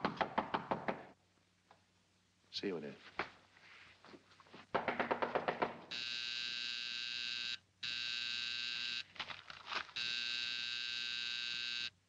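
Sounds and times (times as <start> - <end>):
knocking on a door: 4.7 - 5.9
electric door buzzer ringing: 5.9 - 9.0, 10.0 - 12.0.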